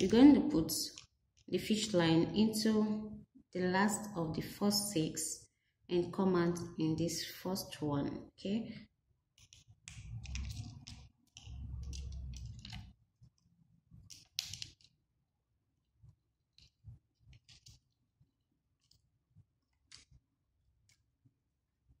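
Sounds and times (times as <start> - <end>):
plastic beads clicking and rattling: 9.4 - 13.0, 14.0 - 15.0.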